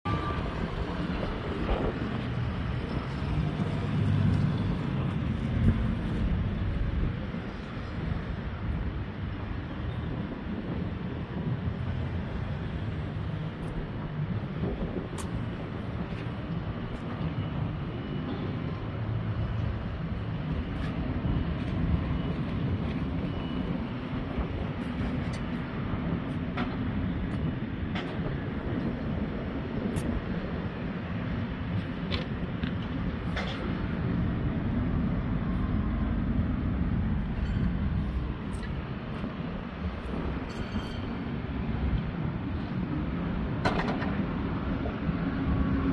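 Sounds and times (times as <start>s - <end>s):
wind buffeting microphone: 0.1s - 45.9s.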